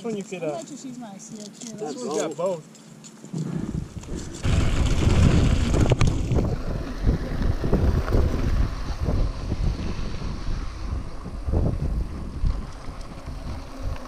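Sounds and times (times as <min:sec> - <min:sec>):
bike tyres rumbling on dirt trail: 0:03.3 - 0:14.0
wind buffeting microphone: 0:03.4 - 0:14.0.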